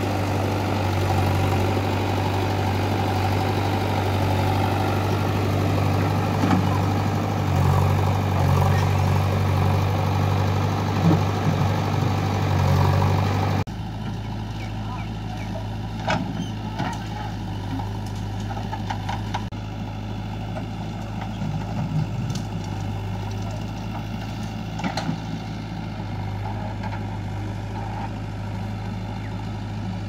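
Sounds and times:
diesel engines running: 0:00.0 - 0:30.0
digging knocks and clunks: 0:06.3 - 0:07.0.

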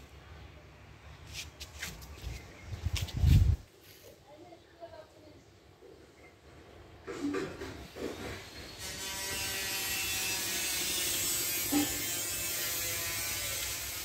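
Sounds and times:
small motor buzzing: 0:08.8 - 0:14.0.

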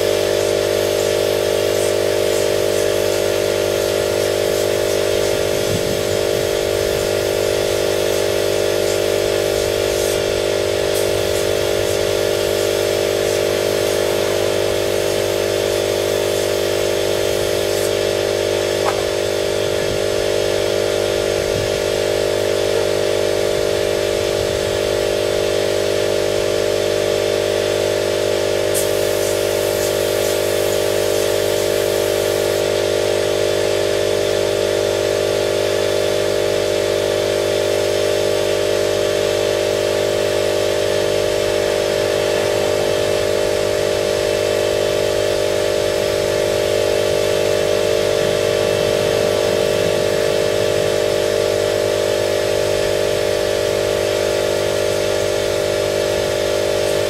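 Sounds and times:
air hissing: 0:00.0 - 0:20.0, 0:28.6 - 0:32.8
spray-painting machine drone: 0:00.0 - 0:57.0.

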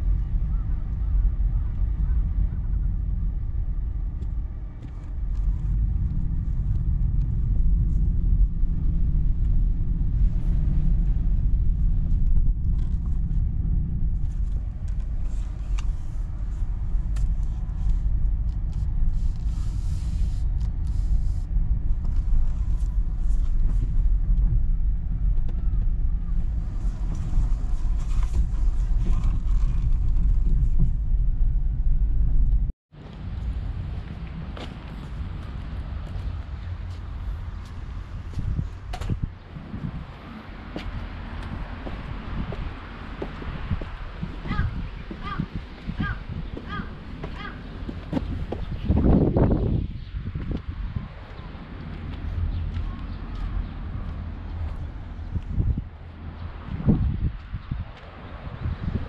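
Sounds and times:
low road and engine rumble: 0:00.0 - 0:59.0.

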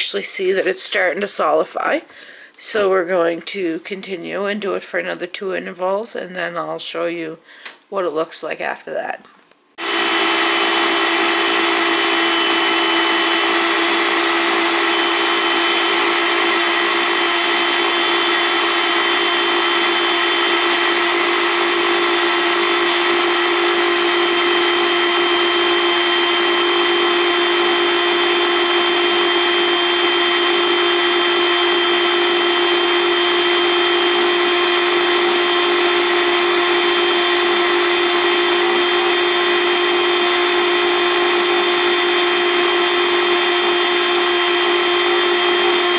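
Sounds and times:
blender motor running: 0:09.8 - 0:45.9.

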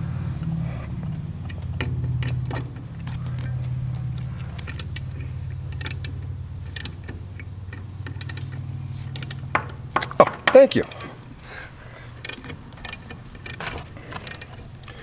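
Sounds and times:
steady low hum: 0:00.0 - 0:15.0
metallic clicks and taps: 0:01.0 - 0:11.3.

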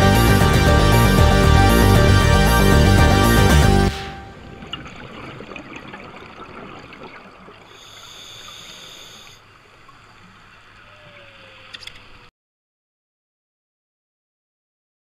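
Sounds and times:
underwater crackling hiss: 0:07.6 - 0:10.8.

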